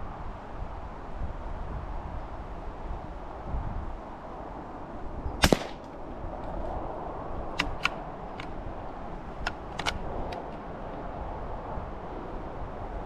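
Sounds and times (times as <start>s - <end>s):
rifle shot: 5.4s - 6.0s
sharp clicks: 7.6s - 8.5s, 9.4s - 10.6s.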